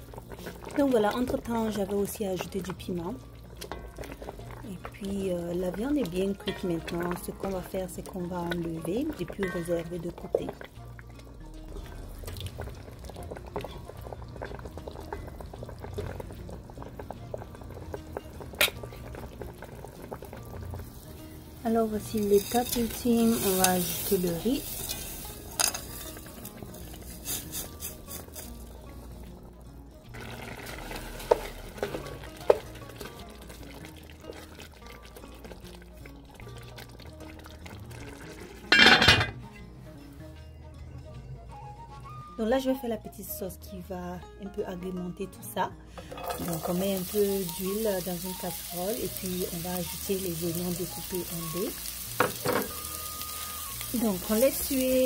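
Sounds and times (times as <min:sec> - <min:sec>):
broth boiling and bubbling: 0:00.0 - 0:38.8, 0:46.1 - 0:55.0
soft background music: 0:00.0 - 0:55.0
spatula stirring rice in pot: 0:22.4 - 0:28.7.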